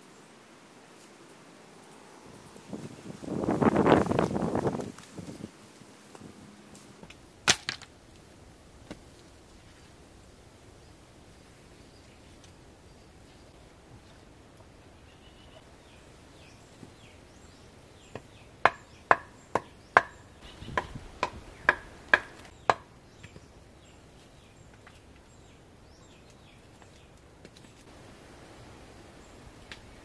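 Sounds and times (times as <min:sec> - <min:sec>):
machete chopping wood: 0:07.5 - 0:07.9, 0:20.8 - 0:22.8.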